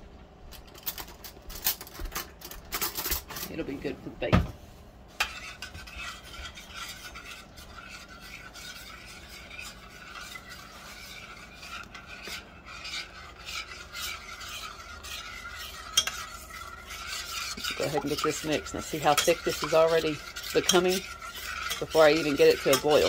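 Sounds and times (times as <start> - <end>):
metal spoon scraping saucepan: 5.1 - 23.0.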